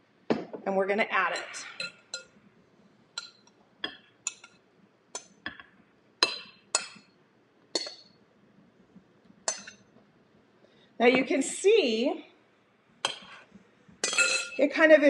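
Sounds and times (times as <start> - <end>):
glass bowl clinking on metal pan: 9.5 - 9.8, 14.0 - 14.6.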